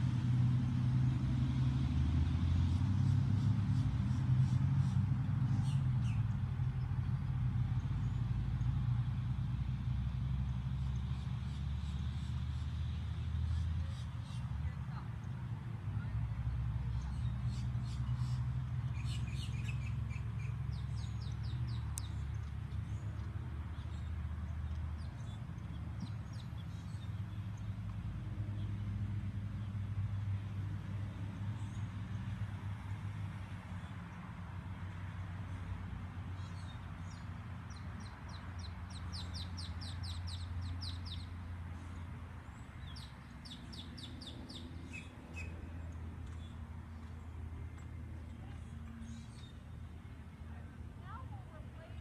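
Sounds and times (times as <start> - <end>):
songbird chirping: 10.4 - 28.8, 29.5 - 52.0.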